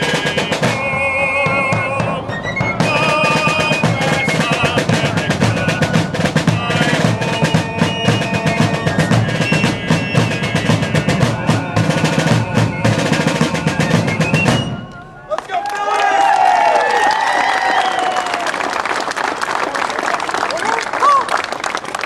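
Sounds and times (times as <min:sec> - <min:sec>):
bass drum: 0:00.0 - 0:14.9
snare drum strokes and rolls: 0:00.0 - 0:15.5
shrill fife melody: 0:00.0 - 0:15.6.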